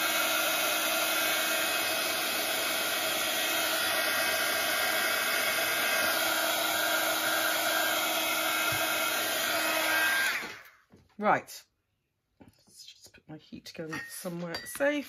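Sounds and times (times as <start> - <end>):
heat gun blowing air: 0.0 - 10.7.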